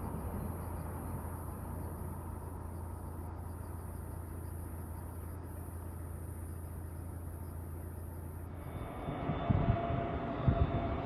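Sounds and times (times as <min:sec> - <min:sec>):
steady high hiss: 0:00.0 - 0:11.0
distant jet taking off: 0:08.5 - 0:11.0.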